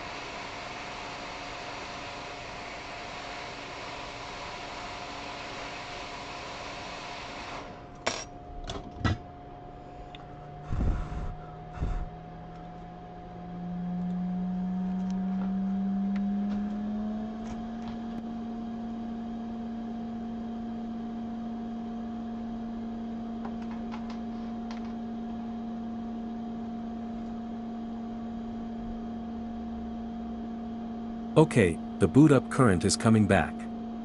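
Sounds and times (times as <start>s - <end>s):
steady electrical hum: 7.8s - 18.2s.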